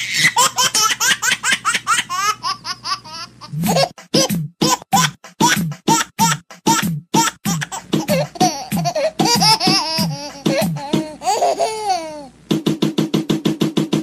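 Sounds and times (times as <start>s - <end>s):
person laughing: 2.2s - 12.3s
music: 3.6s - 11.4s, 12.4s - 14.0s.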